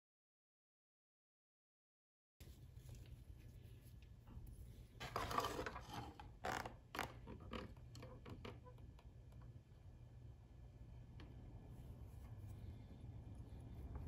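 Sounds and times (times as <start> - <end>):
steady low hum: 2.4 - 6.9, 8.6 - 14.0.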